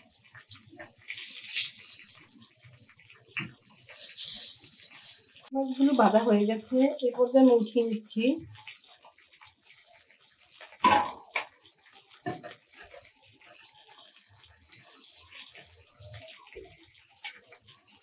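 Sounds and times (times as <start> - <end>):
fish sizzling in oil: 0.0 - 18.0
metal spatula hitting pan: 10.8 - 11.5.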